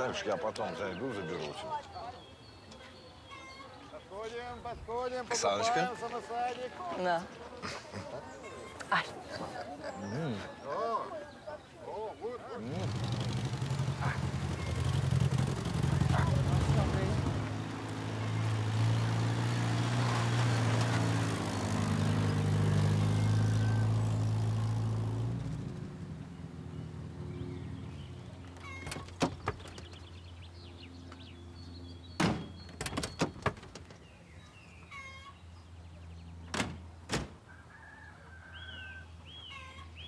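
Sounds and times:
car engine running: 0:12.6 - 0:26.6.

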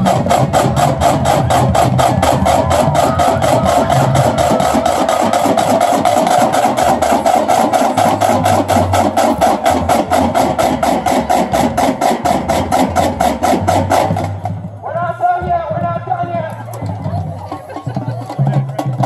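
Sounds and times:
bass drums: 0:00.0 - 0:19.0
marching drumline: 0:00.0 - 0:19.0.

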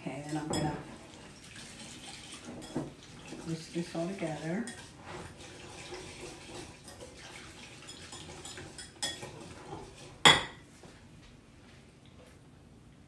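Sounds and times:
whisk clicking and scraping bowl: 0:01.8 - 0:10.3.

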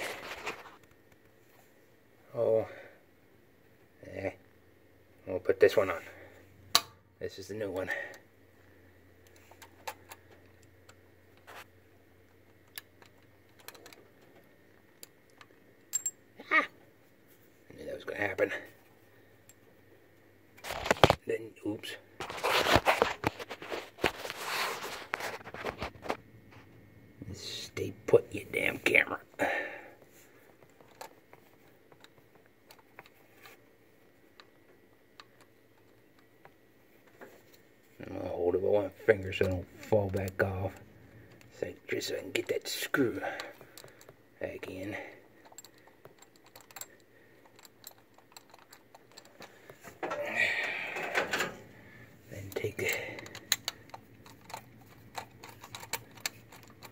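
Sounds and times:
small metal clicks and taps: 0:45.4 - 0:49.8, 0:53.2 - 0:56.9.

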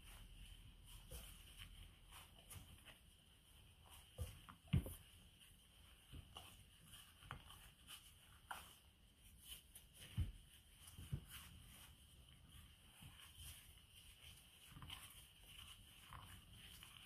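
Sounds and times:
dough thumping and squishing: 0:00.0 - 0:17.0.

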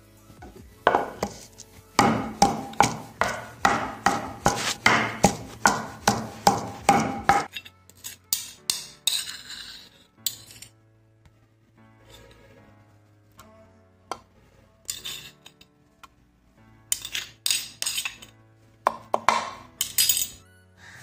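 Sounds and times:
pestle pounding in stone mortar: 0:00.9 - 0:01.4, 0:02.0 - 0:07.5, 0:18.9 - 0:19.6
scraping around mortar: 0:00.9 - 0:10.6, 0:14.9 - 0:15.6.

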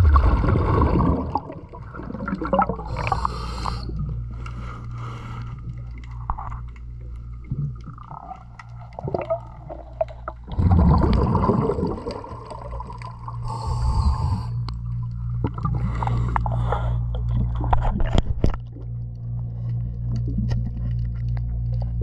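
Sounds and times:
diver exhaling bubbles: 0:00.0 - 0:04.3, 0:07.4 - 0:14.6
steady low hum: 0:00.0 - 0:22.0
diver inhaling with hiss: 0:02.8 - 0:05.6, 0:13.4 - 0:14.6, 0:15.8 - 0:17.2.

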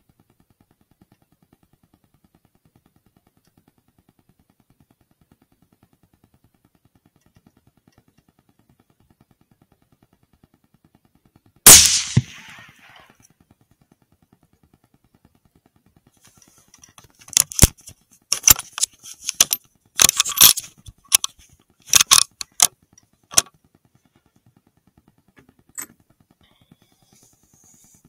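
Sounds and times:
rifle shot: 0:11.7 - 0:13.1.

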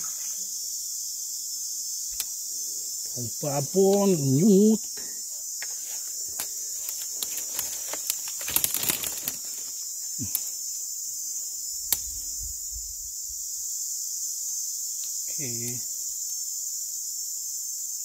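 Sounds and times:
high-pitched insect chorus: 0:00.0 - 0:18.0
rustling: 0:05.7 - 0:10.5.

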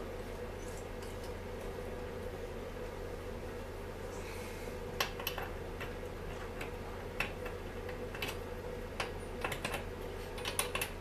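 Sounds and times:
steady low hum: 0:00.0 - 0:11.0
metallic clicks and taps: 0:09.0 - 0:11.0.

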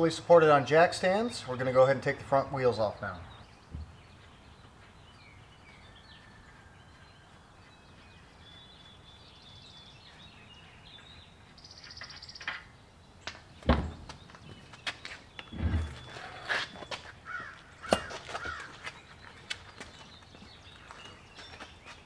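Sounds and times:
birds chirping: 0:00.0 - 0:22.0
heavy thud: 0:15.5 - 0:16.1.

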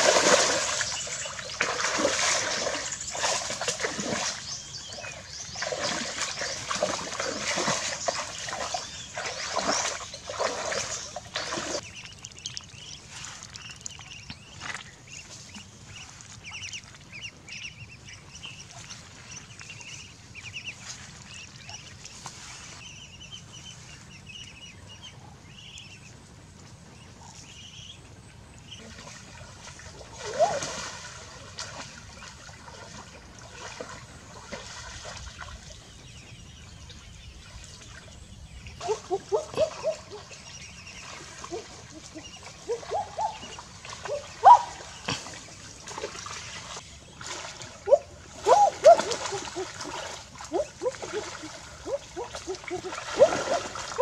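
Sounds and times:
muddy water splashing: 0:00.0 - 0:23.0, 0:28.6 - 0:54.0
ducklings peeping: 0:00.2 - 0:29.2, 0:35.6 - 0:45.7.

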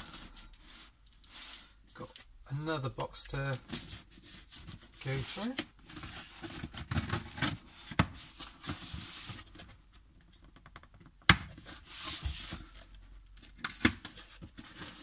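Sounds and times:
cardboard flaps scraping and rustling: 0:11.6 - 0:12.8.

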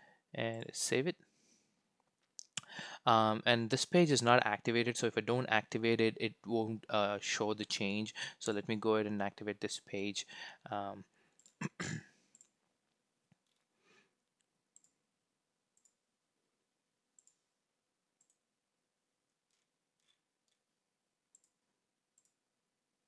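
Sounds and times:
computer mouse clicks: 0:12.3 - 0:12.6, 0:14.8 - 0:15.0, 0:15.8 - 0:16.0, 0:17.2 - 0:17.4, 0:18.2 - 0:18.4, 0:22.2 - 0:22.4.

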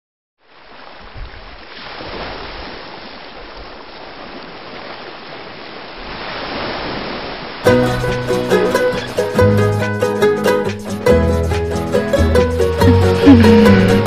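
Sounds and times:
waves washing onto beach: 0:00.4 - 0:09.2.

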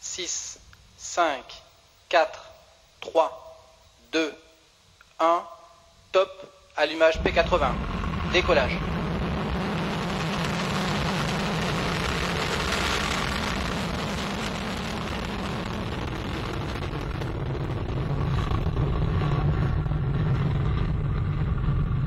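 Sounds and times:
rocket motor roaring: 0:07.2 - 0:22.0.

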